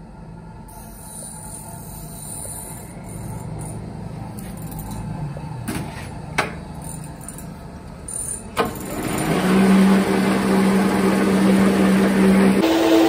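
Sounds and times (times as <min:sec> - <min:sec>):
metal lathe running: 0:08.2 - 0:13.0.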